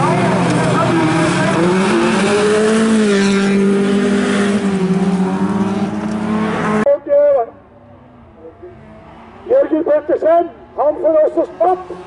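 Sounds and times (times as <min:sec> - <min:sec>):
race car engines at high revs: 0:00.0 - 0:06.9, 0:10.5 - 0:12.0.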